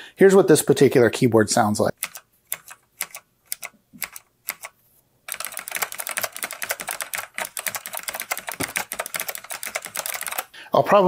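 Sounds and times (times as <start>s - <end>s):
keyboard typing clicks: 2.0s - 10.5s.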